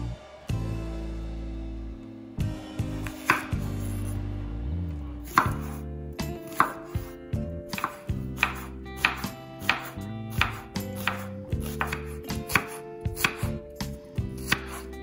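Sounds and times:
soft background music: 0:00.0 - 0:15.0
knife chopping onion on board: 0:03.0 - 0:04.0, 0:05.2 - 0:07.1, 0:07.7 - 0:15.0.

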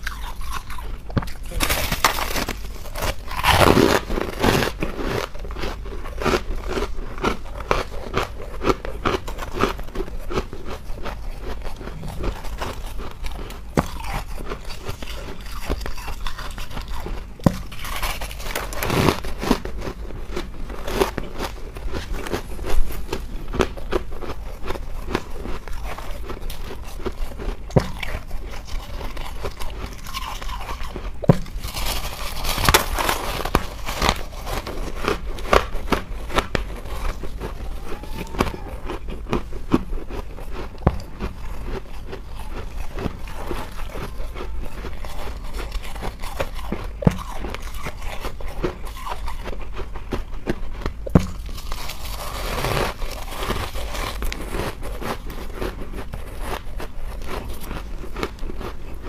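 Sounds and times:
person chewing crunchy ice: 0:00.0 - 0:59.0.

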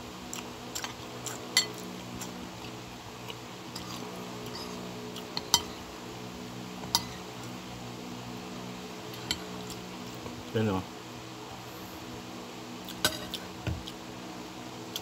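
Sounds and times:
steady low hum: 0:00.0 - 0:15.0
cutlery clinking against a bowl: 0:00.8 - 0:01.8, 0:05.4 - 0:05.8, 0:09.2 - 0:09.5, 0:13.0 - 0:13.4.

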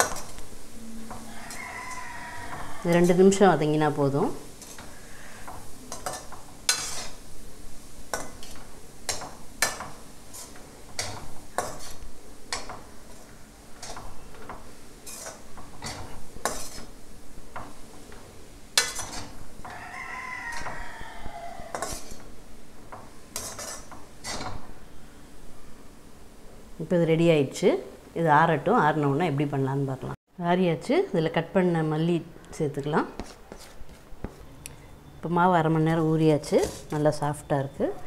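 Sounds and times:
metal ladle scraping a pan: 0:00.0 - 0:07.3, 0:08.1 - 0:18.1, 0:18.8 - 0:22.4, 0:23.3 - 0:24.6, 0:36.4 - 0:37.0.

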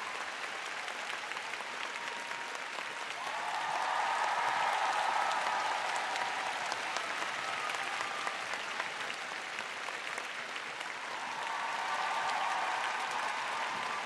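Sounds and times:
audience applauding: 0:00.0 - 0:14.0.

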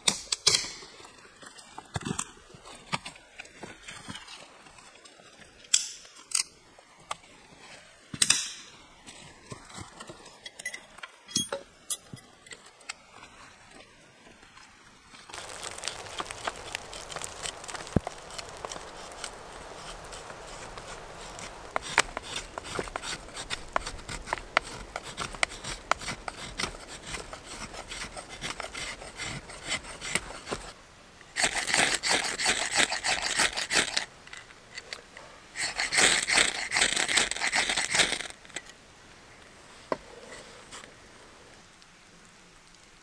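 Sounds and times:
dry wood being scraped: 0:15.3 - 0:30.8, 0:31.4 - 0:34.1, 0:35.6 - 0:38.6
harsh rasping: 0:15.3 - 0:30.8, 0:35.6 - 0:38.4.

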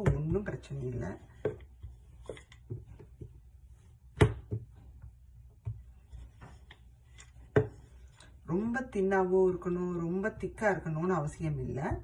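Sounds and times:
rolling pin rolling dough: 0:00.0 - 0:12.0
rolling pin knocking on counter: 0:04.2 - 0:04.7, 0:07.5 - 0:07.8.

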